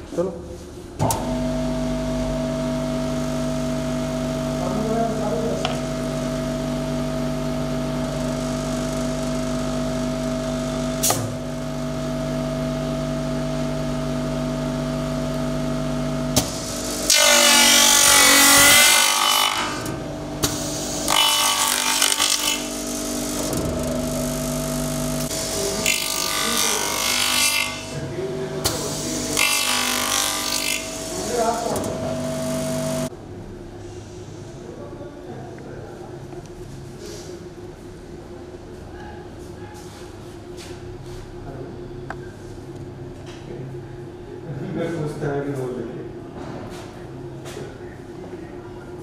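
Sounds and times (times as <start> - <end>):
electric motor humming: 1.4 - 33.1
cutters cutting plastic: 25.2 - 28.0, 28.6 - 33.0.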